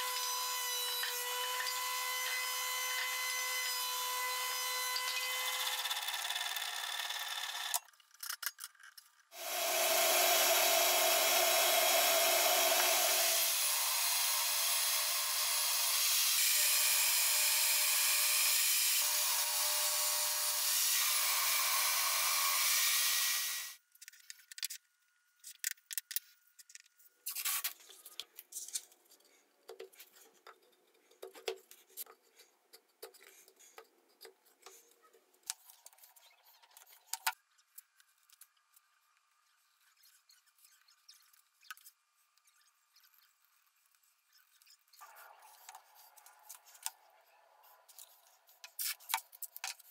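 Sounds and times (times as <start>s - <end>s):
table saw ripping wood: 9.4s - 23.8s
masking tape and wood crackling: 25.4s - 49.9s.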